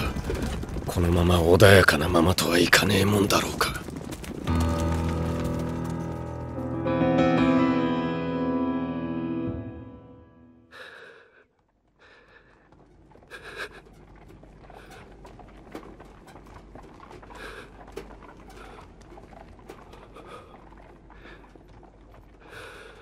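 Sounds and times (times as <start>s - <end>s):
horses breathing and snorting: 0.0s - 1.0s, 10.8s - 23.0s
torches crackling: 0.0s - 6.6s
piano music: 4.5s - 10.7s.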